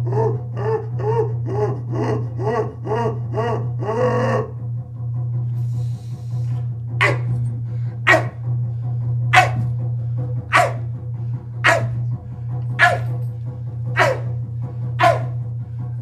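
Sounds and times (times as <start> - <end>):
steady low hum: 0.0 - 16.0
man imitating animal barks: 7.0 - 7.4, 8.1 - 8.4, 9.3 - 9.6, 10.5 - 10.9, 11.6 - 12.0, 12.8 - 13.1, 14.0 - 14.4, 15.0 - 15.4.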